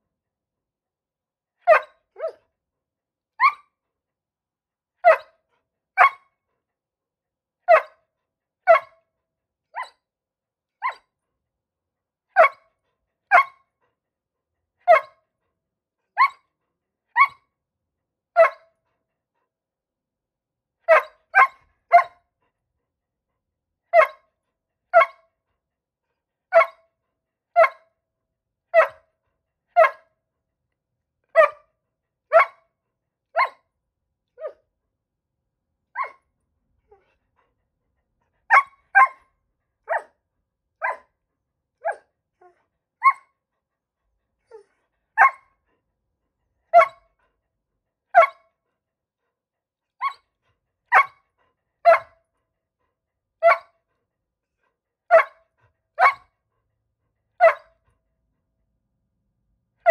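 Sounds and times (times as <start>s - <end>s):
dog barking: 1.6s - 2.4s, 5.0s - 5.4s, 6.0s - 6.3s, 7.7s - 8.0s, 8.6s - 9.0s, 12.4s - 12.7s, 13.3s - 13.7s, 14.8s - 15.2s, 16.2s - 16.5s, 17.2s - 17.4s, 18.4s - 18.8s, 20.8s - 22.3s, 23.9s - 24.3s, 24.9s - 25.3s, 26.5s - 26.9s, 27.5s - 27.9s, 28.7s - 29.1s, 29.7s - 30.1s, 31.3s - 31.7s, 32.3s - 32.7s, 33.3s - 33.7s, 34.4s - 34.6s, 35.9s - 36.2s, 38.5s - 40.2s, 40.8s - 41.1s, 41.8s - 43.4s, 44.5s - 45.6s, 46.7s - 47.2s, 48.1s - 48.5s, 50.0s - 50.3s, 50.9s - 51.2s, 51.8s - 52.3s, 53.4s - 53.8s, 55.1s - 56.4s, 57.4s - 57.8s.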